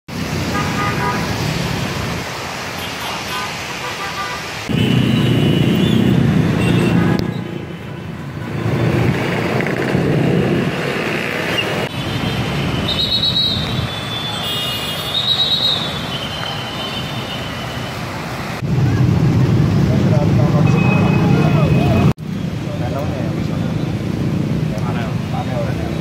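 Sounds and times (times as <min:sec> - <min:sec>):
tyre noise on wet road: 0:00.1 - 0:26.0
car and truck engines: 0:04.4 - 0:26.0.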